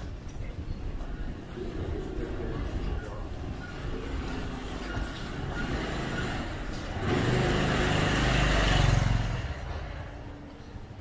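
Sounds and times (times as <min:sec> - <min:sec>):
vehicle engine passing by: 0:05.5 - 0:10.2.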